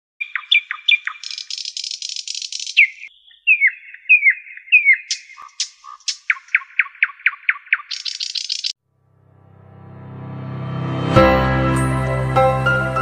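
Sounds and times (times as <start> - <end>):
songbird singing: 0.2 - 8.8.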